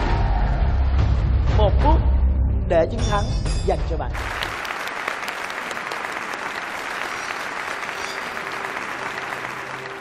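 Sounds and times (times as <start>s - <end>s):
audience applauding: 4.2s - 10.0s.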